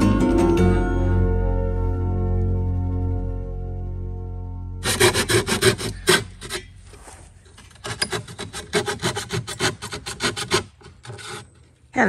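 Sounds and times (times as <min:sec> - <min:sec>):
rasping rubbing strokes on brass: 0:04.8 - 0:06.9, 0:07.5 - 0:11.7.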